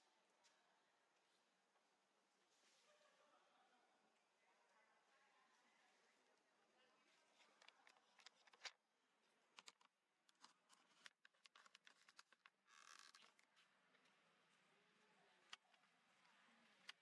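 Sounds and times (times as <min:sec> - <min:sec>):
faint irregular clicks and taps: 0:07.4 - 0:08.8, 0:09.6 - 0:14.6.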